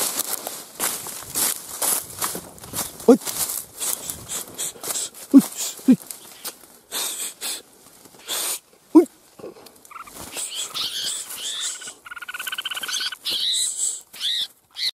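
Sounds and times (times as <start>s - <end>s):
dry brush rustling: 0.0s - 14.9s
bird calls and buzzy chatter: 9.4s - 14.9s.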